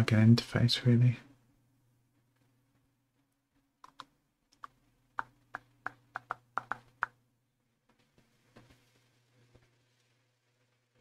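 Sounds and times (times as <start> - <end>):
faint steady hum: 0.0 - 11.0
computer keyboard clicks: 3.8 - 7.2.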